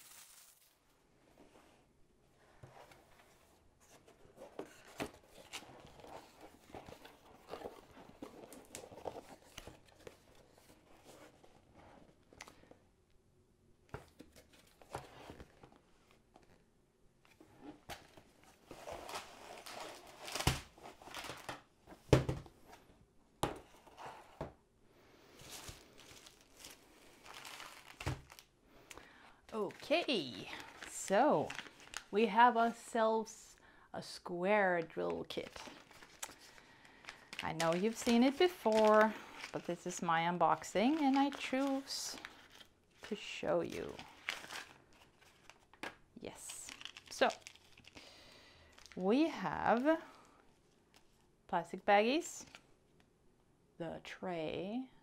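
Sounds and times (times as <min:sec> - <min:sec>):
plastic packaging crinkling: 0:00.0 - 0:00.8, 0:05.2 - 0:10.7, 0:25.4 - 0:32.1, 0:34.8 - 0:49.0.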